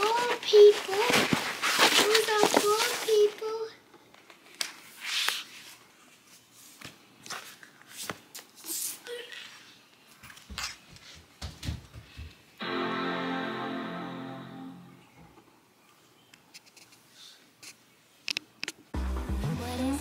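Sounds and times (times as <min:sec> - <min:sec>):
packing paper rustling: 0:00.0 - 0:05.8
music: 0:12.6 - 0:15.0, 0:19.0 - 0:20.0.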